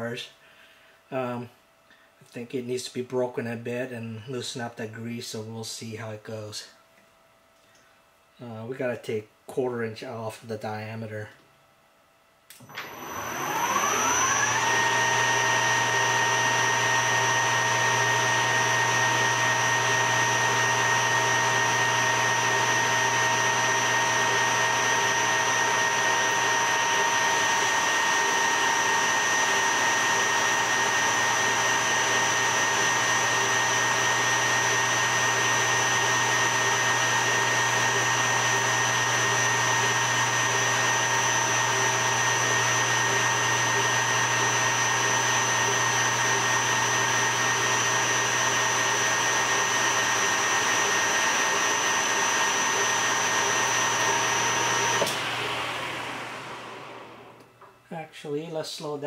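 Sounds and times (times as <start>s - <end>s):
lathe spindle whine: 12.6s - 57.4s.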